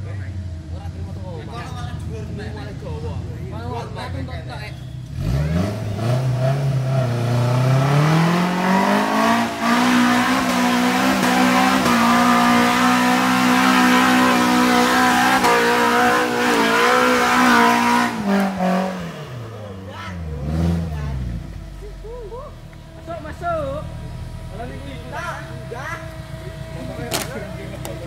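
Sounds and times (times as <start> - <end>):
engine revving hard: 5.1 - 21.6.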